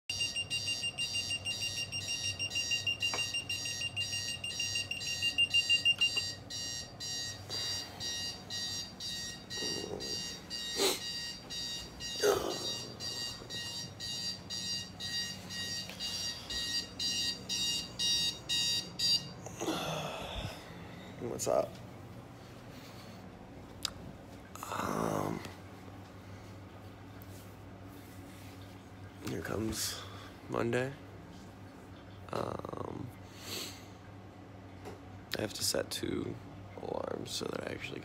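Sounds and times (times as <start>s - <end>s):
alarm clocks beeping: 0.1s - 19.4s
continuous high tone: 0.1s - 21.7s.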